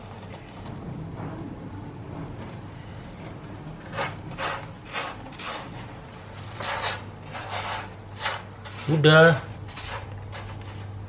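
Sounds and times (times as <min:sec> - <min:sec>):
kitten scratching in cat litter: 0:03.6 - 0:11.0.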